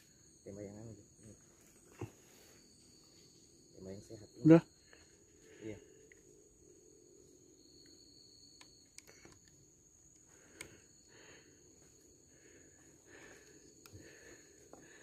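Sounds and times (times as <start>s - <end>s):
high-pitched insect drone: 0.0s - 15.0s
faint small clicks: 7.8s - 10.8s.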